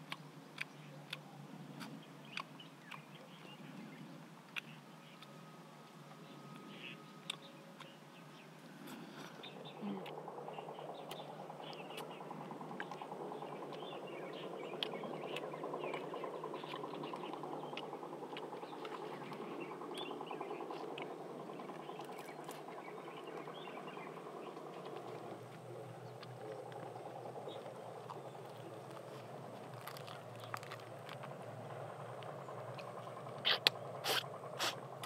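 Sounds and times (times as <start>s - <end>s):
faint bird chirps: 0.6s - 30.8s
steady rough drone: 3.0s - 35.0s
charred fish skin crackling: 27.6s - 31.6s.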